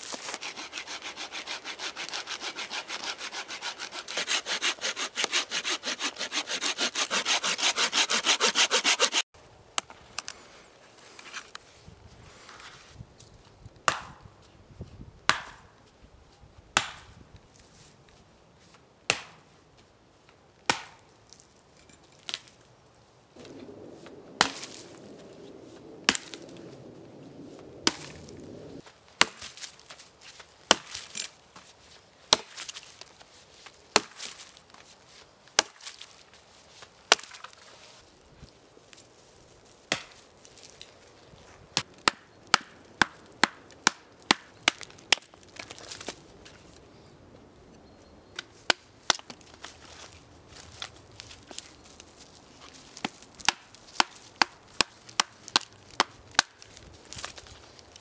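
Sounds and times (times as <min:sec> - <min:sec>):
axe chopping wood: 0:13.8 - 0:14.2, 0:15.3 - 0:15.7, 0:16.8 - 0:17.2, 0:19.1 - 0:19.4, 0:20.7 - 0:21.0, 0:26.1 - 0:26.4, 0:27.8 - 0:28.1, 0:29.2 - 0:29.7, 0:30.7 - 0:31.2, 0:32.3 - 0:32.8, 0:33.9 - 0:34.4, 0:35.6 - 0:36.0, 0:37.1 - 0:37.6, 0:39.9 - 0:40.2, 0:41.8 - 0:46.0, 0:48.4 - 0:49.4, 0:53.0 - 0:56.6.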